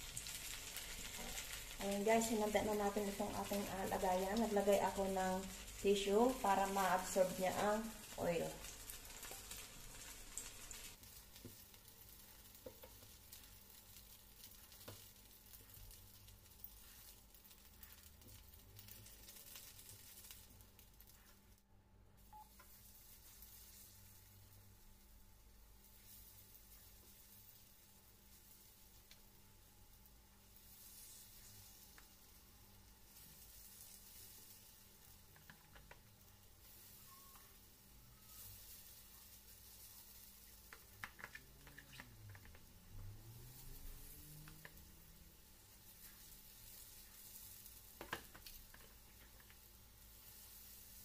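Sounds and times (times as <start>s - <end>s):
hot oil sizzling in a frying pan: 0.0s - 21.6s, 22.2s - 51.0s.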